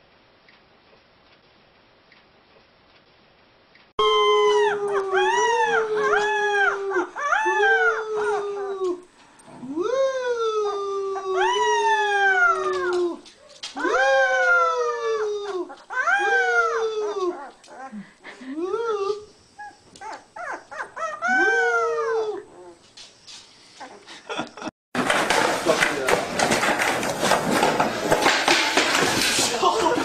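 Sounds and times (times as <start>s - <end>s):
puppy howling: 4.0s - 9.0s, 9.6s - 18.0s, 18.8s - 22.8s
man howling: 4.0s - 19.3s, 21.0s - 22.8s.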